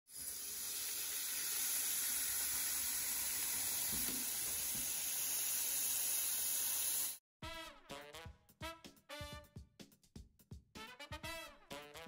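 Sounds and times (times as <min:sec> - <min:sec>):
tap water running into bowl: 0:00.1 - 0:07.1.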